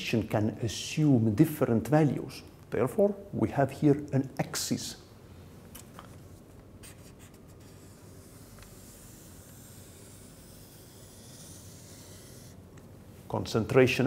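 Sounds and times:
marker scratching on paper: 6.8 - 12.6.

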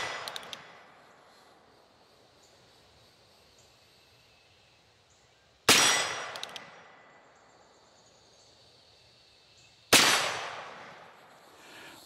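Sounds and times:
revolver gunshots: 5.7 - 6.8, 9.9 - 10.9.

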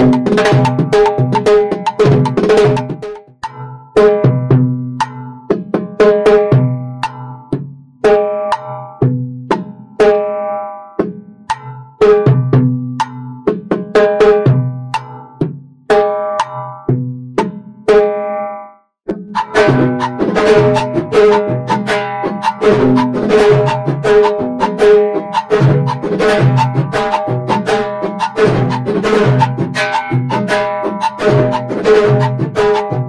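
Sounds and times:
timbales ringing: 19.3 - 33.0.

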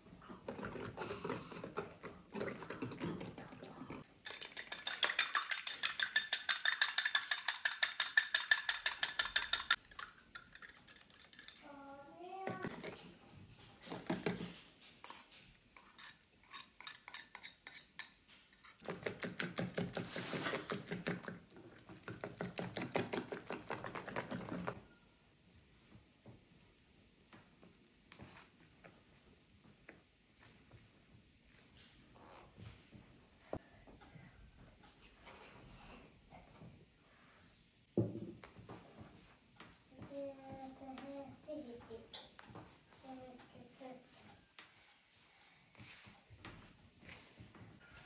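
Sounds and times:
utensil clinking in mixing bowl: 4.2 - 11.8, 15.0 - 19.6.

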